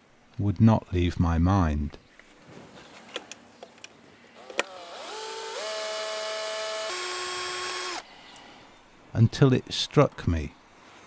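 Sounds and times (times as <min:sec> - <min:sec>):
cordless drill motor whine: 0:04.4 - 0:08.0
drill sharp click: 0:04.4 - 0:08.0.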